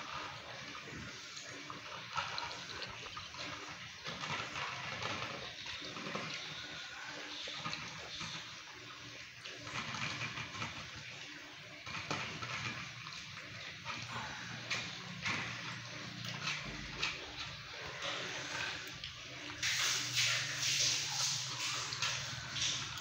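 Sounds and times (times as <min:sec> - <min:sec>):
kibble rattling in metal bowl: 0:01.9 - 0:08.5.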